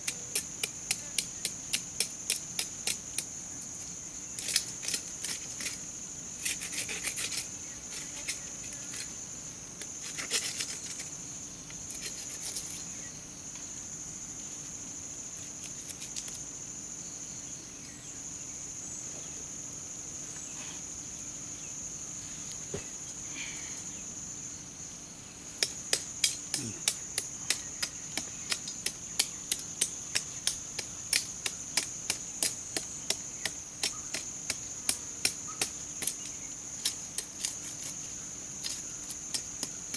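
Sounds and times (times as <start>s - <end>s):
high insect drone: 0.0s - 39.9s
knife chopping soil: 25.6s - 38.0s.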